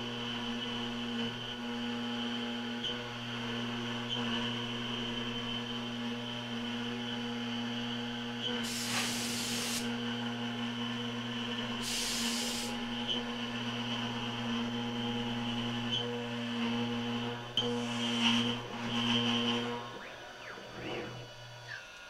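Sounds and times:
router spindle humming: 0.0 - 22.0
air hiss blowing chips: 8.6 - 9.9, 11.8 - 12.8.

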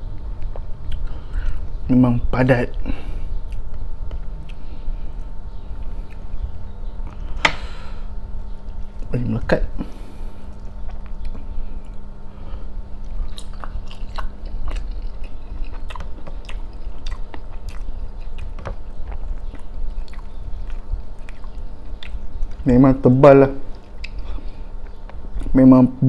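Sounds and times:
low steady hum: 0.0 - 26.0
wet chewing mouth clicks: 0.3 - 1.1, 10.5 - 12.0, 13.0 - 22.6, 23.6 - 25.5.

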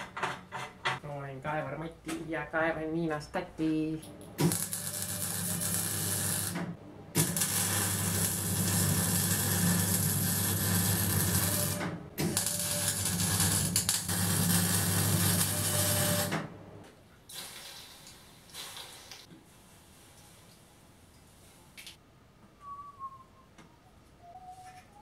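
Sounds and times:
welding arc crackling: 4.4 - 16.4.

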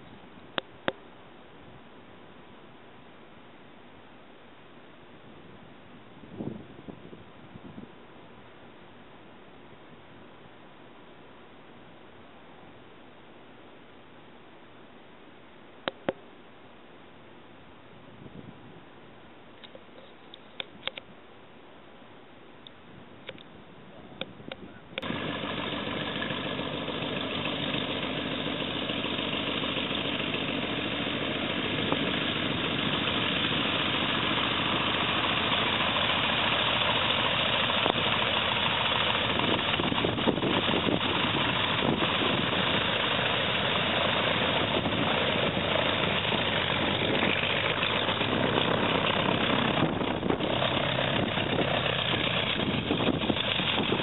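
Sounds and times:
radial engine idling: 25.0 - 54.0.

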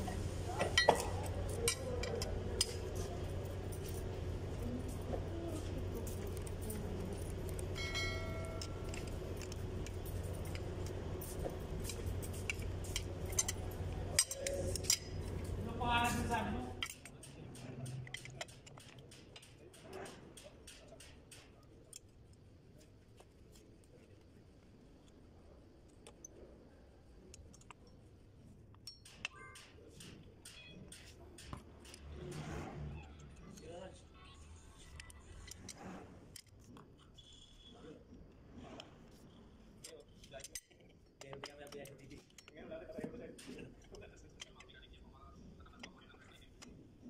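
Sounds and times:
steady low hum: 0.0 - 29.2
small metal parts clinking: 0.6 - 22.4, 39.1 - 42.7
metallic ring: 7.1 - 15.5.

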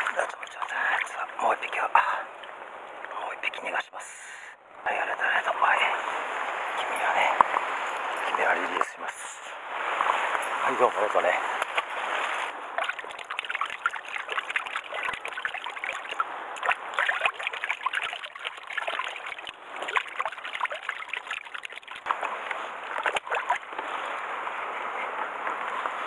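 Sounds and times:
water splashing in a bucket: 0.0 - 1.6, 9.9 - 24.0.

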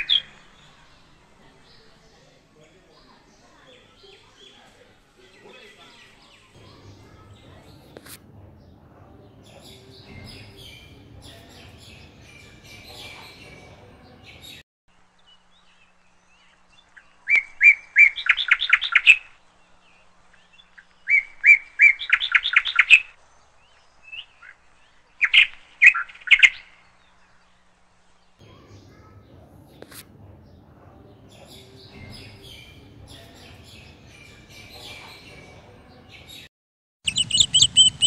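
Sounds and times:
songbird singing with trill: 0.0 - 0.9, 8.6 - 28.4, 31.1 - 38.0
faint background noise: 0.0 - 36.5.

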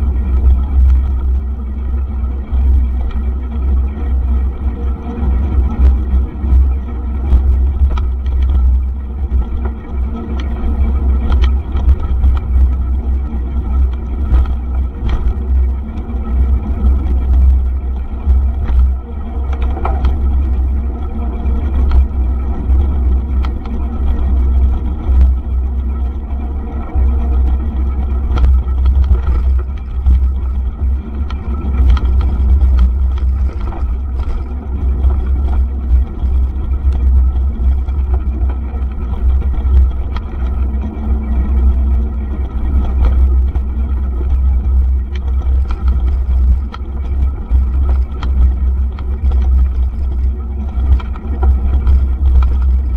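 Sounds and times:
bike clicks and rattles: 0.0 - 52.9
wind rumble on microphone: 0.0 - 52.9
tyres rolling on dirt: 26.3 - 52.9.

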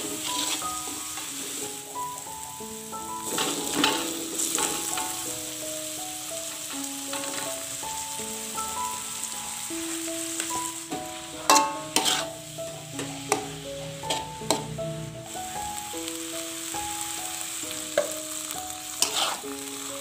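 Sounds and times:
metal spatula scraping a wok: 0.0 - 1.8, 11.1 - 14.7, 18.8 - 19.6
leaves sizzling in hot oil: 0.0 - 20.0
soft background music: 0.0 - 20.0
spatula knocking against pan: 11.0 - 12.2.

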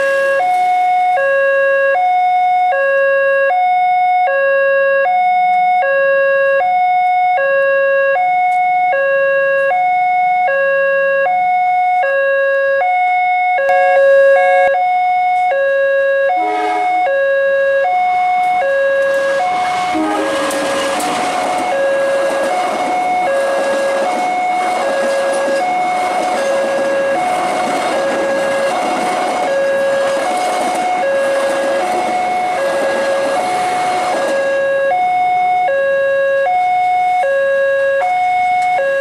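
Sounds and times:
two-tone level crossing alarm: 0.0 - 39.0.

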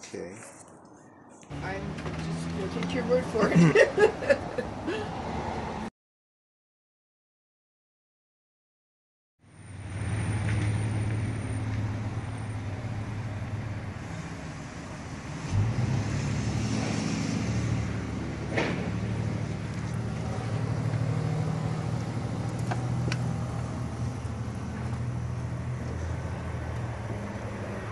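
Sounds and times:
thump: 18.5 - 19.0.

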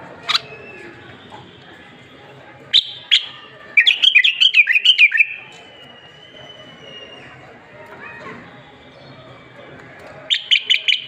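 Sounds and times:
bird singing: 2.7 - 7.4, 10.3 - 11.0.

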